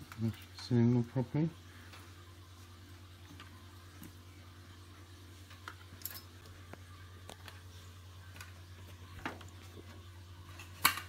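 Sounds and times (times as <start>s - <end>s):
steady low hum: 0.0s - 11.0s
cables clicking inside computer case: 10.5s - 11.0s.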